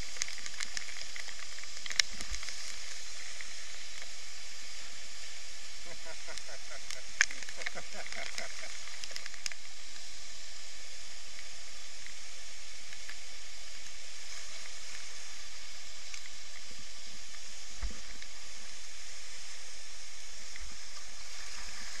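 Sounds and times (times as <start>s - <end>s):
water pouring over a weir: 0.0s - 4.1s.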